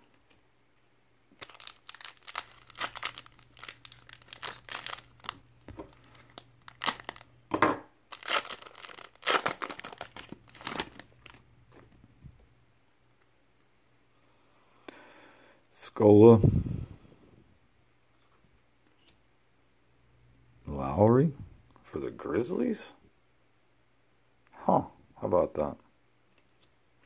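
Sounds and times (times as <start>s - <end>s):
foil wrapper crinkling: 1.4s - 7.3s, 8.1s - 11.4s.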